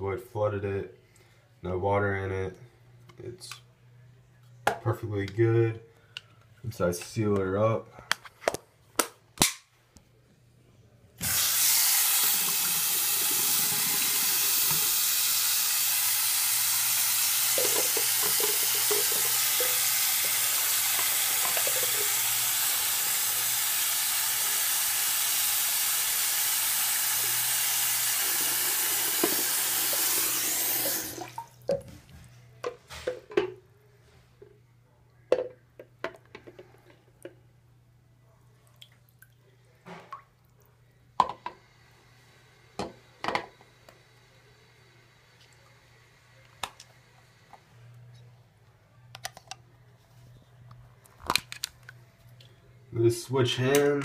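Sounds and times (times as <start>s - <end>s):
faucet water splashing: 11.2s - 31.7s.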